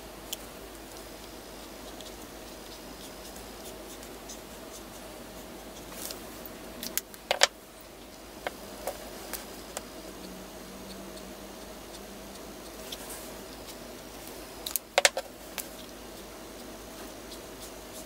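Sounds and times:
sharp clicks and taps: 0:14.7 - 0:16.7.

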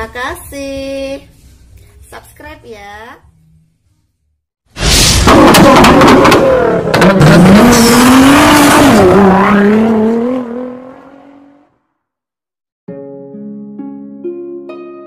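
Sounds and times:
sports car engine revving: 0:05.3 - 0:11.6.

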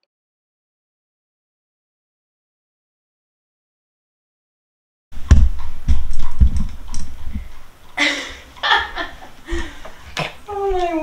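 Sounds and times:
knocks and thumps with clicks: 0:05.2 - 0:07.7.

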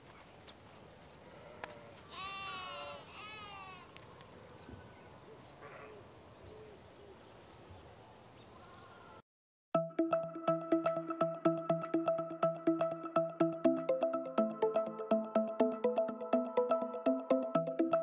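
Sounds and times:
faint hillside background: 0:00.0 - 0:09.2
sheep bleating: 0:01.4 - 0:03.9.

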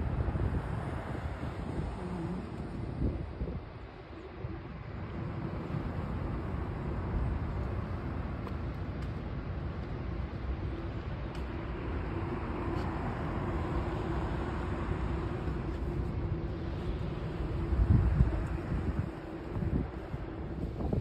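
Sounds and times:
faint steady hum: 0:00.0 - 0:21.0
wind buffeting microphone: 0:00.0 - 0:21.0.

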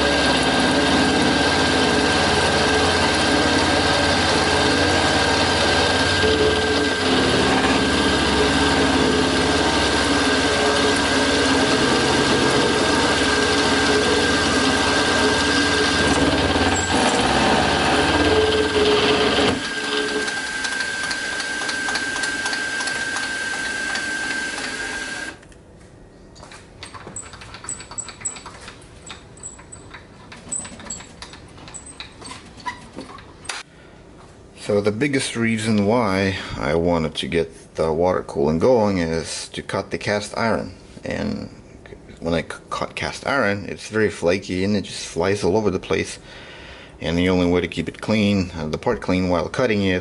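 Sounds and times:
metal cutting noise: 0:00.0 - 0:25.4
milling motor whine: 0:00.0 - 0:25.4.

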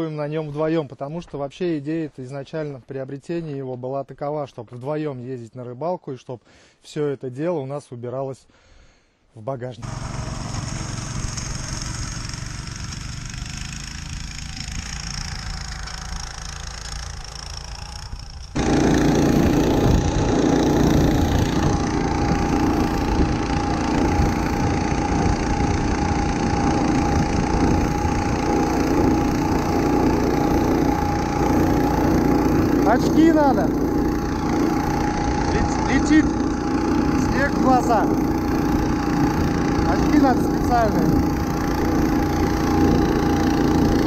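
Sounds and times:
snowmobile engine running: 0:09.8 - 0:44.0.

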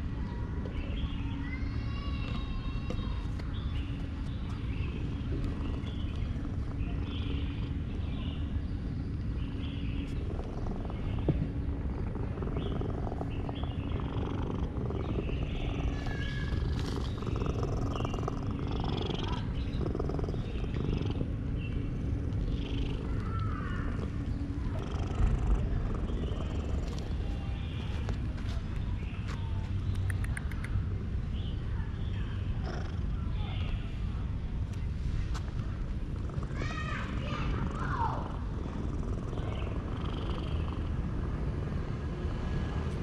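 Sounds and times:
cat purring: 0:04.9 - 0:09.2, 0:10.0 - 0:28.2, 0:32.6 - 0:33.8, 0:37.3 - 0:41.9.

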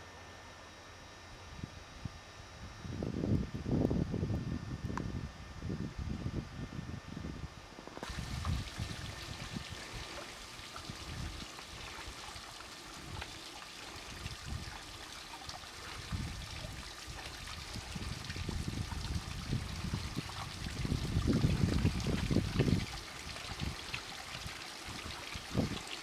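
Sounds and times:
waterfall trickling over stones: 0:08.0 - 0:26.0.

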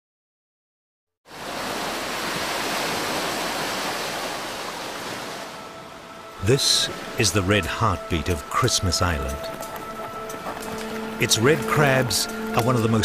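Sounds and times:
waves washing over rocks: 0:01.3 - 0:09.3.

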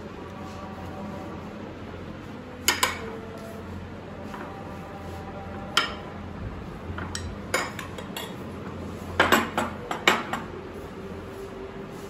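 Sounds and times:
dishes and cutlery clinking: 0:02.6 - 0:03.3, 0:05.7 - 0:06.2, 0:06.9 - 0:08.6, 0:09.2 - 0:10.5.

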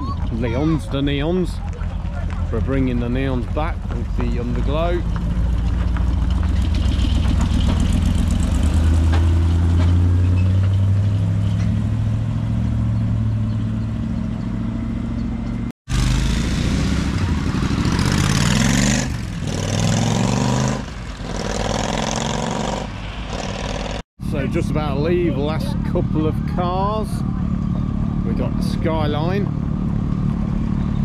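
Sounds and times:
deep engine at low revs: 0:00.0 - 0:20.9
engine revving up: 0:04.1 - 0:15.2, 0:15.9 - 0:24.5.

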